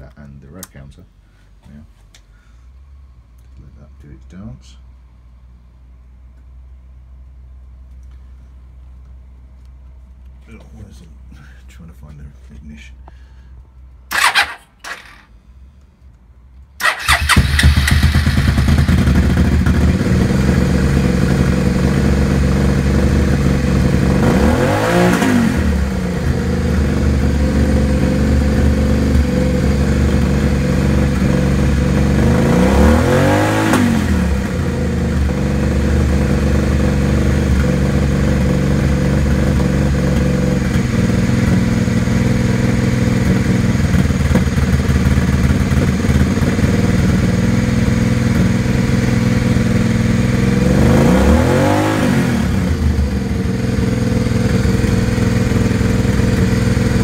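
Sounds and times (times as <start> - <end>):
motorcycle engine revving: 14.1 - 15.3, 16.8 - 57.0
motorcycle engine starting and idling: 14.1 - 15.4, 16.8 - 57.0.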